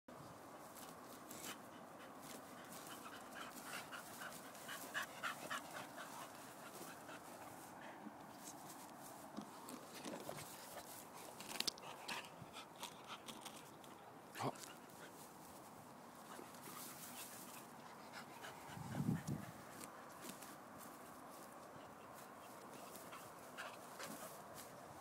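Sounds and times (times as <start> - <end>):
rustling in long grass: 0.2 - 11.9, 14.6 - 25.0
dogs sniffing: 0.8 - 13.6, 21.3 - 25.0.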